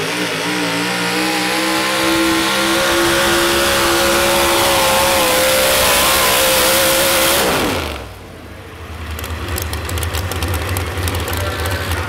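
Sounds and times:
engine running flat out: 0.0s - 8.2s
engine rough idle with crackles: 8.9s - 12.0s.

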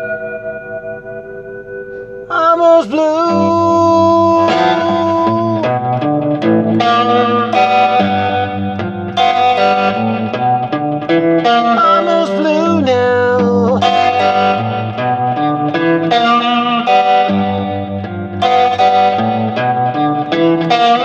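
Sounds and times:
low sustained accompaniment: 0.0s - 2.3s
electric guitar melody: 0.0s - 21.0s.

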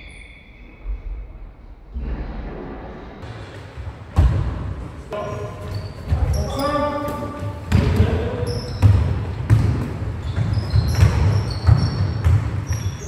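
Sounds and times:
basketball bouncing: 4.1s - 4.8s, 7.6s - 13.0s
trainers squeaking on floor: 5.2s - 9.4s, 10.1s - 13.0s.

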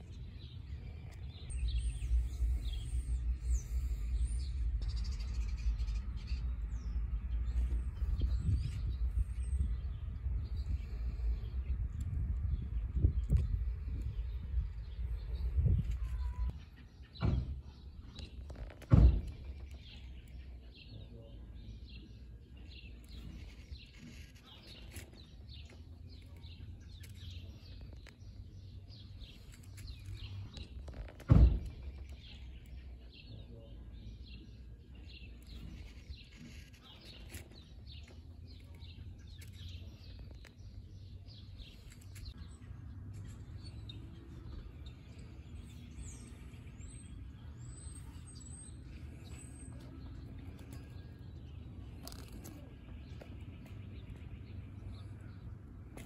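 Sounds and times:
low rumble: 0.0s - 16.6s
nestling birds begging chirps: 0.0s - 56.0s
loud thumps: 18.6s - 19.8s.

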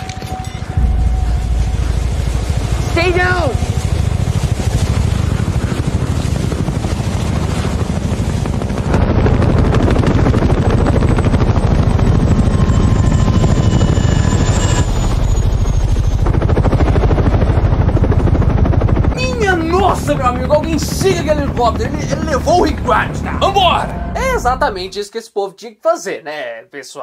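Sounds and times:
helicopter rotor chop: 0.0s - 24.9s.

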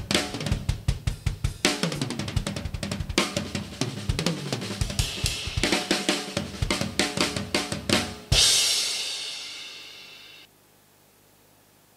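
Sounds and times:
drum kit groove: 0.0s - 10.5s
crash cymbal: 8.4s - 10.5s.

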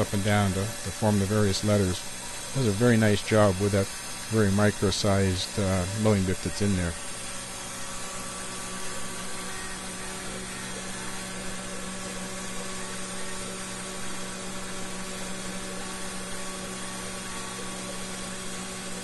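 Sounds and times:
milling spindle humming: 0.0s - 19.0s.

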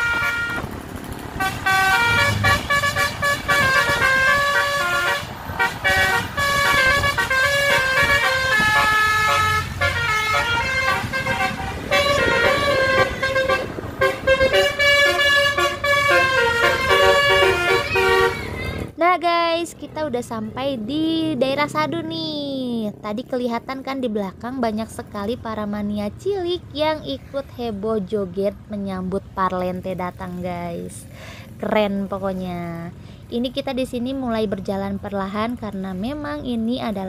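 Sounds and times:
multi-tone air horn melody: 0.0s - 0.7s, 1.4s - 18.6s
low vehicle rumble: 0.0s - 37.0s.

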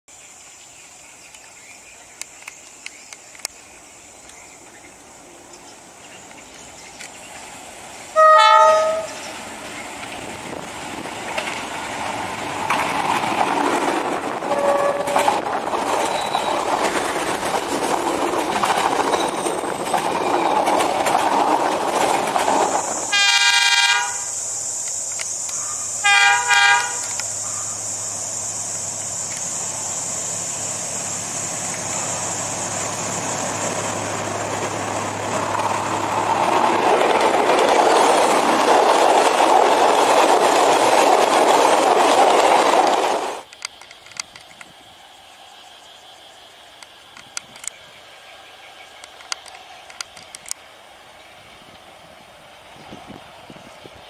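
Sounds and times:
train passing: 0.2s - 54.0s
locomotive engine humming: 3.8s - 38.6s
locomotive horn blasts: 8.2s - 9.3s, 14.5s - 15.4s, 23.1s - 24.3s, 26.0s - 27.7s.

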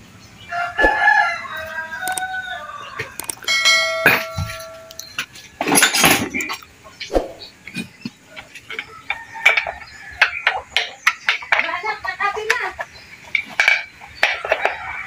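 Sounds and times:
wrench clinking on metal: 3.2s - 6.6s.

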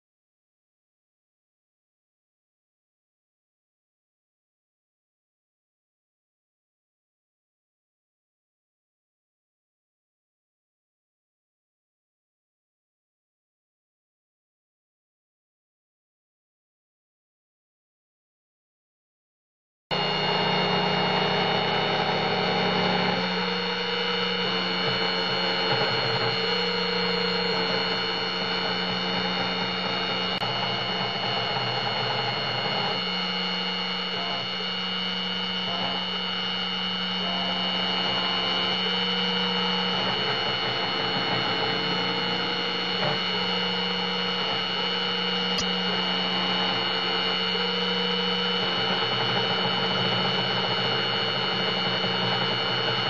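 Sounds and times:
router spindle whining: 19.9s - 53.0s.

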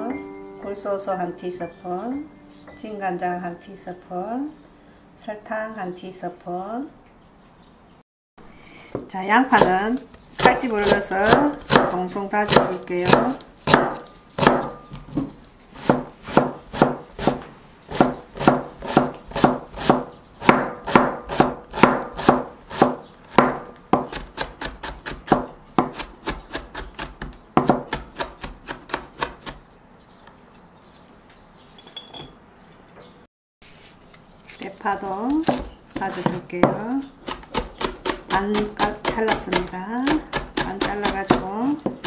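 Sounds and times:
knife chopping on plastic board: 9.5s - 14.8s, 15.8s - 29.6s, 35.3s - 42.0s.

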